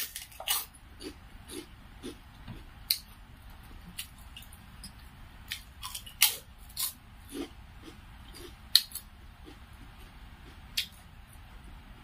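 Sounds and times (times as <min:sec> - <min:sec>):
wet chewing: 0:05.5 - 0:11.0.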